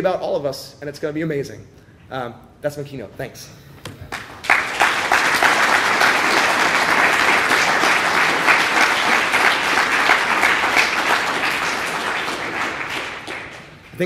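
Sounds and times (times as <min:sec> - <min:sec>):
audience applauding: 0:04.1 - 0:14.0.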